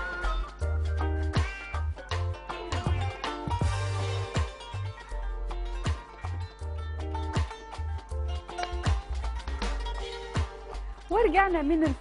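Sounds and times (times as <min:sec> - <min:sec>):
bumper music with pulsing bass: 0:00.0 - 0:11.8
deep drum hit: 0:01.4 - 0:04.9.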